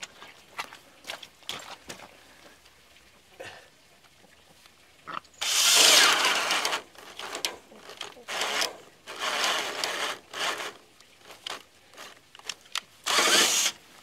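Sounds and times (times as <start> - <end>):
cordless drill into wood: 5.4 - 7.5, 8.3 - 10.8, 13.0 - 13.8.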